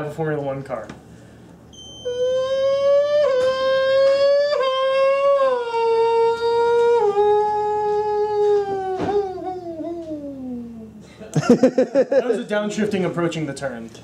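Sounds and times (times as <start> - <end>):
man imitating racing car engine: 2.2 - 11.0.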